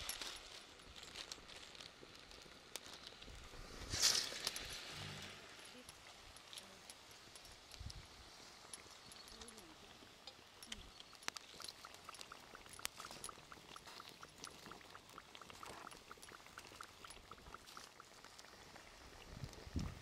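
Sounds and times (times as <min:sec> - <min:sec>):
food frying in hot oil: 0:08.0 - 0:20.0
faint regular chirp: 0:08.6 - 0:14.5.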